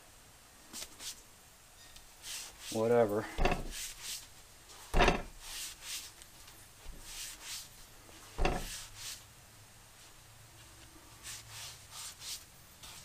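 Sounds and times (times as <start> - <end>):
scraping and rubbing: 2.2 - 6.2, 6.8 - 9.2
wheel knocking on workbench: 3.4 - 3.8, 5.0 - 5.4, 8.4 - 8.8.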